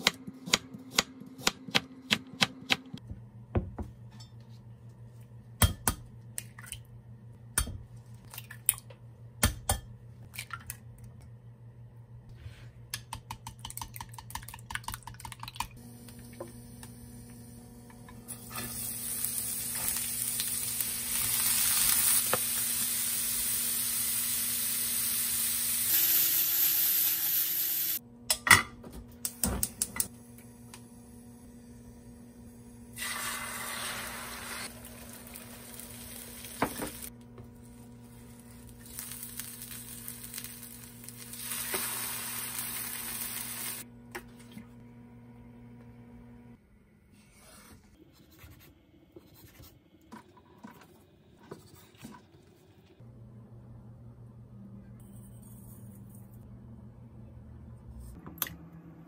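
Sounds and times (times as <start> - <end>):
oil sizzling in a pan: 18.4 - 28.0, 33.0 - 37.1, 37.7 - 43.8.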